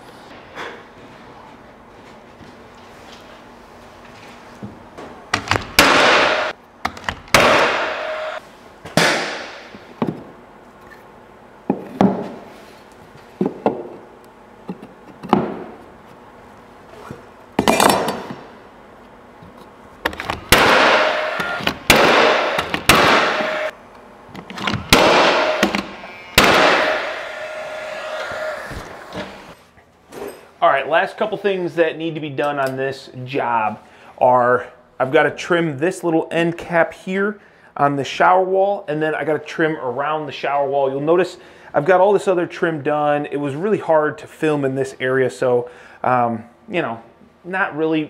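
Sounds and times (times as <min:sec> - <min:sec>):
nail gun firing: 0:05.5 - 0:08.2, 0:20.5 - 0:23.7, 0:24.9 - 0:27.3.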